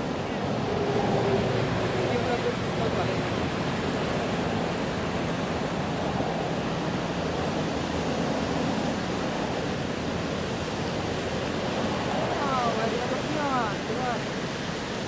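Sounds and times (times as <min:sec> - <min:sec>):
ocean surf breaking: 0:00.0 - 0:15.0
wind on microphone: 0:00.0 - 0:15.0.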